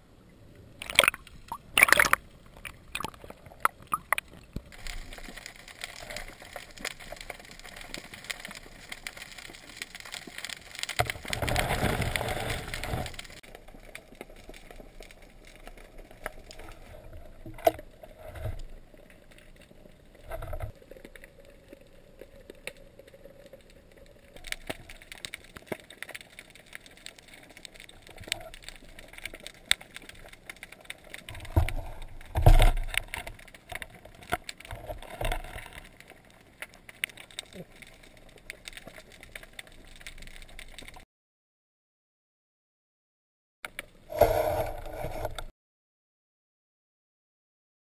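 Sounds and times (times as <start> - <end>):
underwater water noise: 0.0 - 41.0, 43.7 - 45.5
rushing bubbling water: 0.8 - 5.3.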